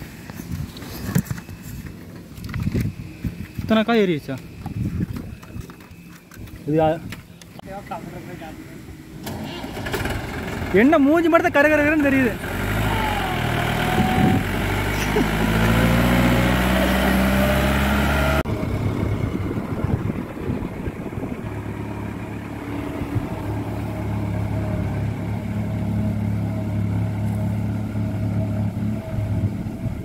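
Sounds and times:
tractor diesel engine running: 9.0s - 30.0s
rumbling bumpy background: 18.4s - 30.0s.

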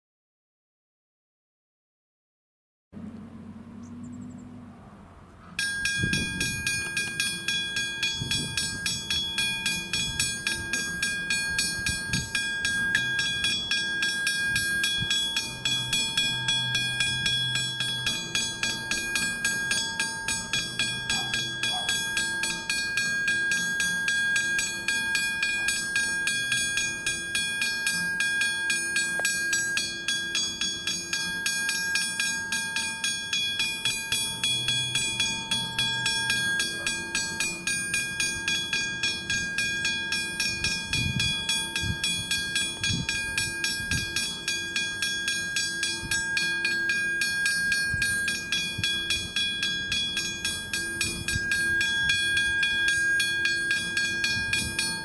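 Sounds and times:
level crossing bell ringing: 5.6s - 55.0s.

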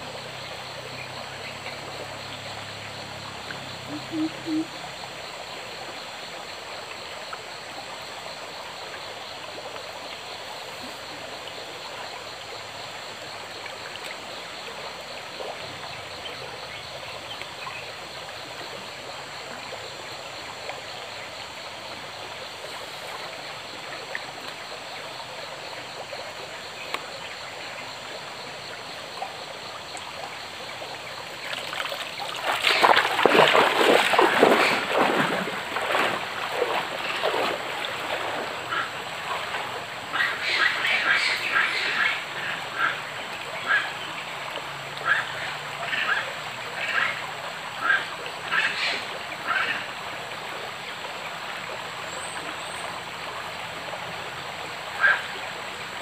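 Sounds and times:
stream flowing: 0.0s - 56.0s
splashing in water: 31.4s - 40.5s.

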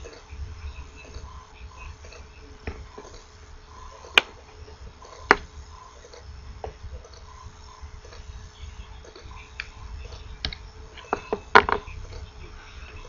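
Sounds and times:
faint clicks: 9.0s - 12.3s.

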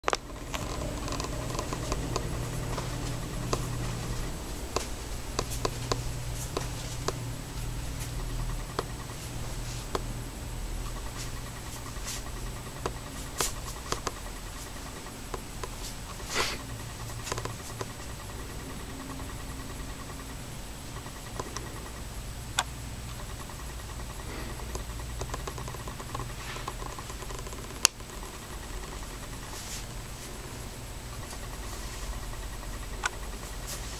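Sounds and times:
faint mechanical ticking: 0.0s - 33.9s
low electrical hum: 0.0s - 33.9s
sharp clicks: 10.8s - 29.4s.

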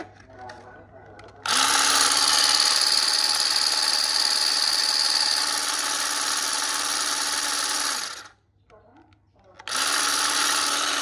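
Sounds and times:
electric grass shears buzzing: 1.5s - 8.3s, 9.7s - 11.0s.

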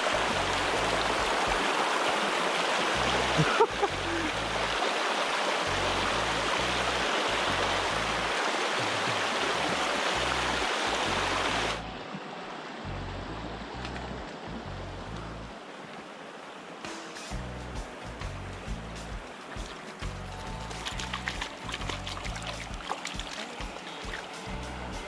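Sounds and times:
low music bassline: 0.0s - 1.7s, 3.0s - 4.8s, 5.7s - 8.4s, 9.4s - 12.1s, 12.8s - 15.6s, 17.3s - 19.3s, 20.0s - 23.3s, 24.2s - 25.0s
stream rapids rushing: 0.0s - 25.0s.

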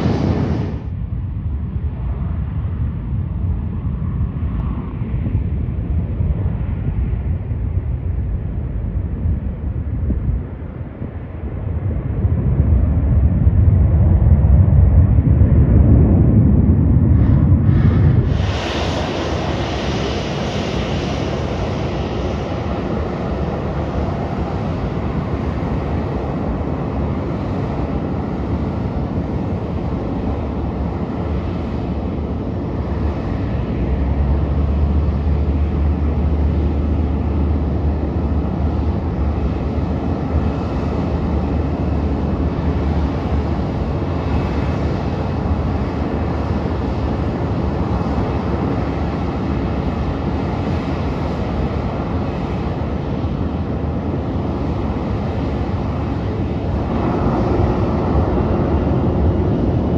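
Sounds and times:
jet engines idling: 0.0s - 0.9s, 15.5s - 59.9s
deep rumble: 0.0s - 59.9s.

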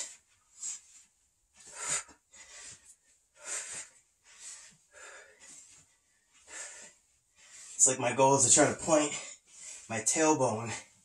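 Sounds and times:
man breathing hard: 1.6s - 7.8s, 9.1s - 9.9s.

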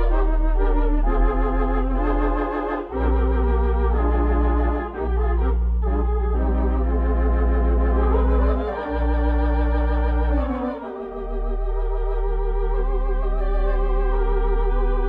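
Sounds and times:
organ chords: 0.0s - 15.0s.

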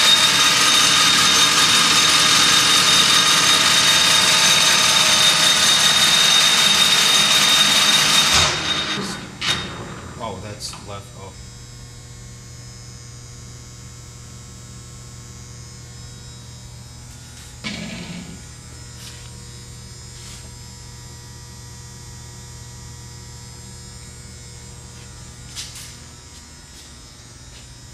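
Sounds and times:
lathe humming and buzzing: 0.0s - 27.9s
metallic clunk: 17.6s - 18.4s.

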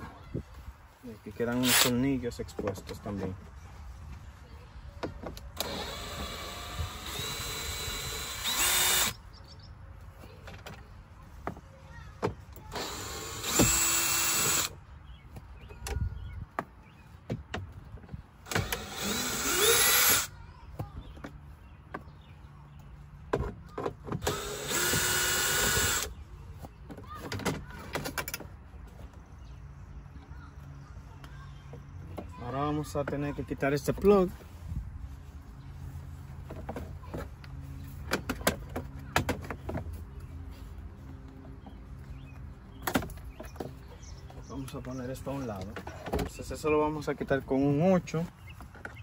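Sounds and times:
cordless drill whining: 1.6s - 1.9s, 5.6s - 9.2s, 12.7s - 14.7s, 18.5s - 20.3s, 24.2s - 26.1s.

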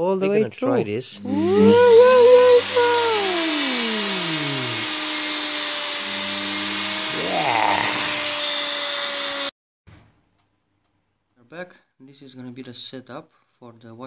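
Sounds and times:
motor whirring whine: 1.2s - 8.4s.

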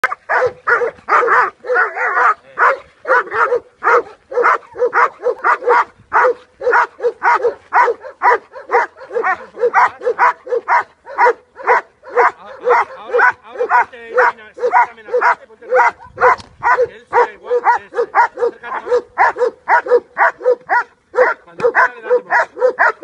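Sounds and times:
dog barking aggressively: 0.0s - 23.0s.

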